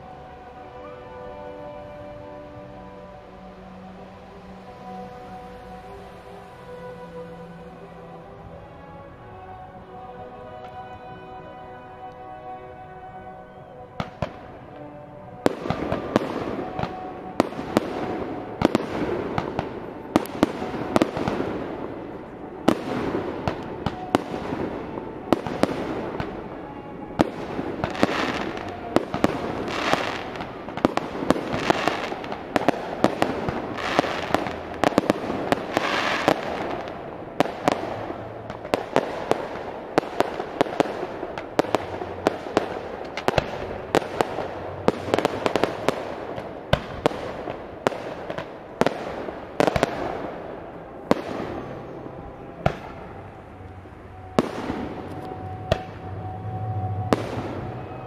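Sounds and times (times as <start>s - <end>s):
fireworks bursting: 13.6s - 58.0s.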